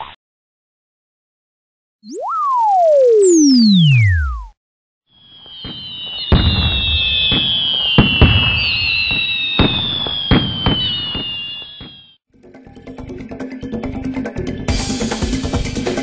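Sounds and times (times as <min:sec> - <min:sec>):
firework whistles: 0:05.1 - 0:12.2
firework bangs: 0:05.3 - 0:12.2.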